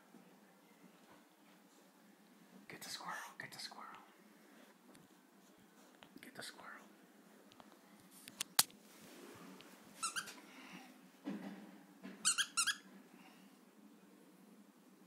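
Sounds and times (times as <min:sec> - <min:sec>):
dog toy squeaking: 0:10.0 - 0:10.4, 0:12.2 - 0:12.8.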